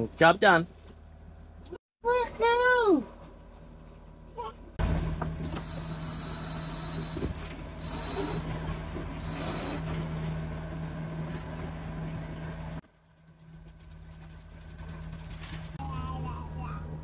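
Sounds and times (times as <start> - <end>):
boat engine low hum: 3.1 - 17.0
thin high tone: 5.4 - 8.6, 9.2 - 10.0.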